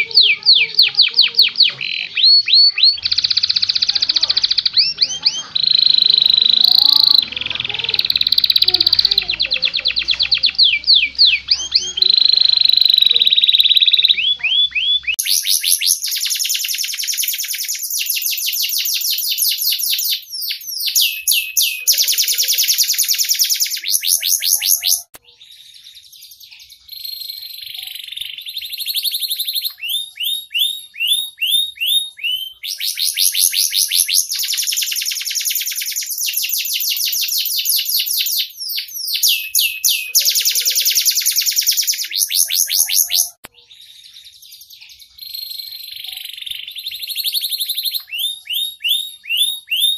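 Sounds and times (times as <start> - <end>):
canary singing trills: 0.0 - 49.9.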